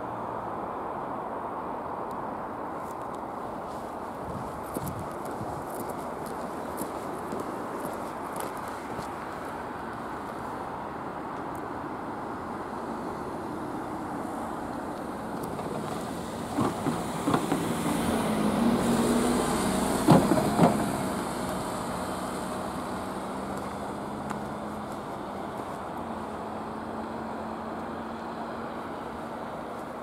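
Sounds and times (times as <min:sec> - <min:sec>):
car engine and tyre noise: 0:00.0 - 0:30.0
wheels knocking over rails: 0:16.5 - 0:18.2, 0:20.0 - 0:21.1.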